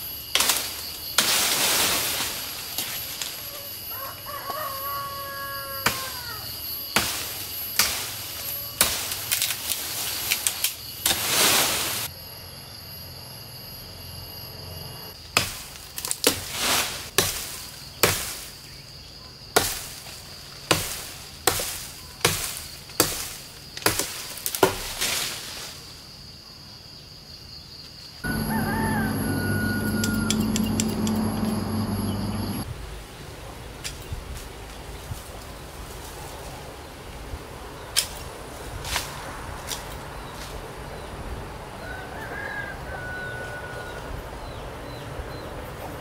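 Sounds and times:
high insect drone: 0:00.0 - 0:32.7
machete chopping wood: 0:15.4 - 0:16.5, 0:17.2 - 0:18.4, 0:19.6 - 0:19.9, 0:20.7 - 0:24.9.

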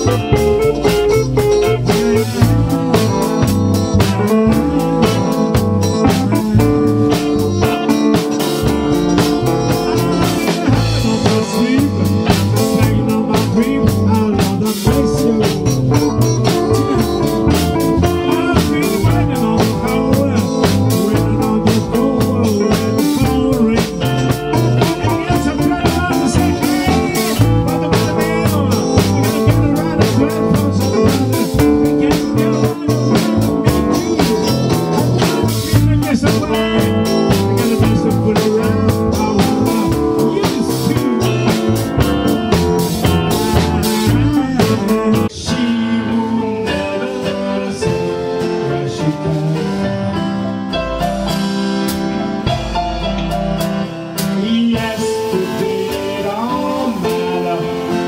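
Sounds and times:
live blues-rock band: 0:00.0 - 0:58.0.

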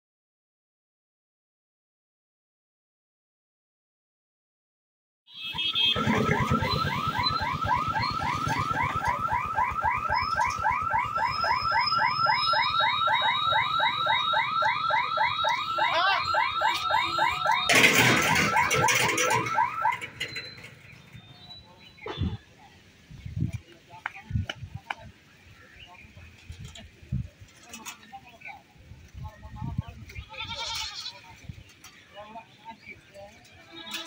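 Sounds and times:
level crossing warning alarm: 0:05.3 - 0:21.7.

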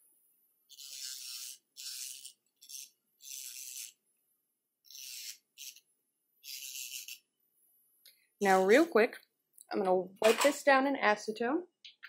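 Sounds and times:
electric nail drill rasping: 0:00.7 - 0:04.0, 0:04.8 - 0:07.3.

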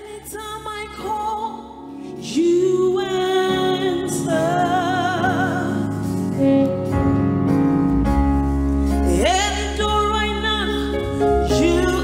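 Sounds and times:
woman singing gospel song: 0:00.0 - 0:06.0, 0:09.1 - 0:12.0.

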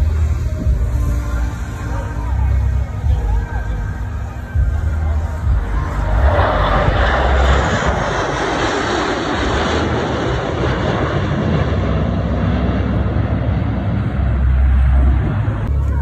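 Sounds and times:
fighter jets roaring past: 0:03.8 - 0:16.0.

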